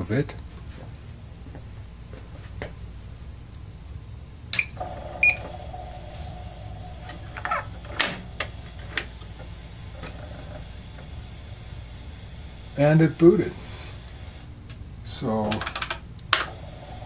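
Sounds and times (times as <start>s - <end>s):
steady hum: 0.0s - 17.0s
floppy disk drive clicking: 4.6s - 13.4s, 15.6s - 17.0s.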